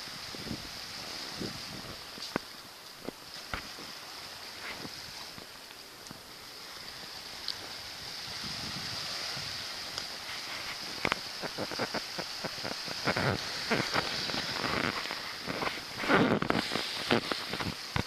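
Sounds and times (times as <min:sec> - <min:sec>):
small waves washing on sand: 0:00.0 - 0:18.0
crunches and scrapes: 0:10.1 - 0:18.0.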